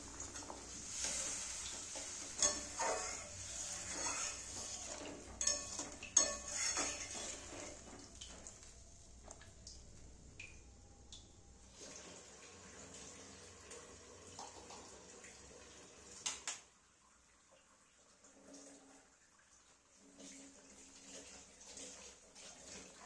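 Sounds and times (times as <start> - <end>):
curry bubbling: 0.0 - 10.0
metal spatula scraping a pot: 0.3 - 8.0.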